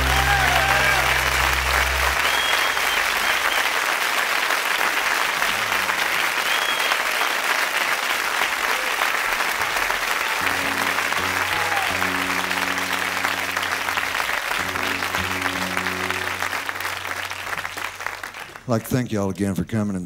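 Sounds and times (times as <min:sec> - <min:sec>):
song's last low note: 0:00.0 - 0:03.0, 0:10.4 - 0:17.8
audience applauding: 0:00.0 - 0:19.2.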